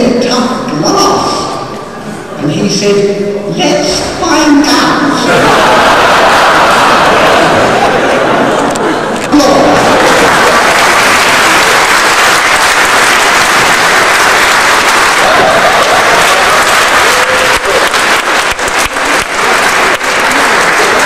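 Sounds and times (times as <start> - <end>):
audience applauding: 5.4 - 21.0.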